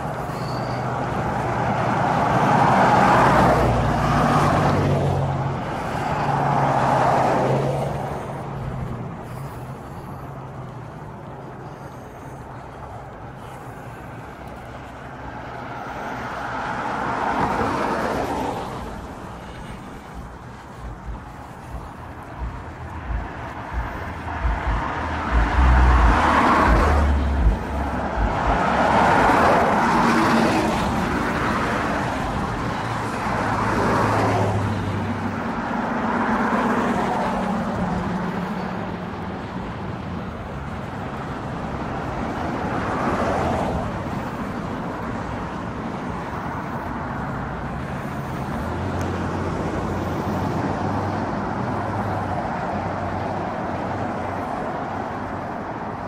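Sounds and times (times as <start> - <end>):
cars passing: 0.0 - 56.0
low thumps: 20.8 - 29.4.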